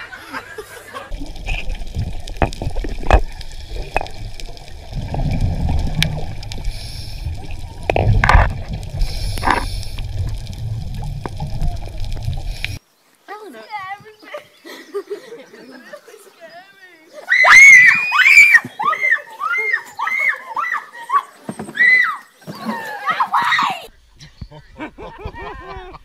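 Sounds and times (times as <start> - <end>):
low underwater rumble: 1.1 - 12.8
scuba bubbles gurgling: 1.1 - 12.8.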